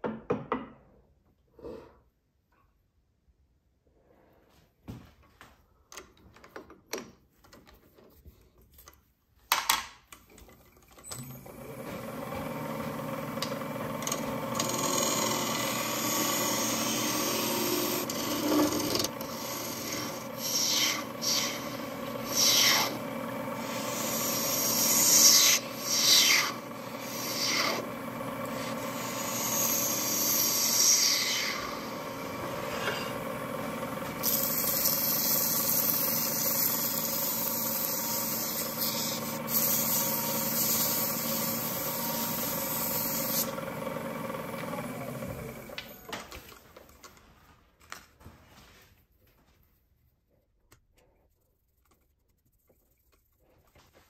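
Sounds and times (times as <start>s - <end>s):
lathe hum: 11.0s - 46.3s.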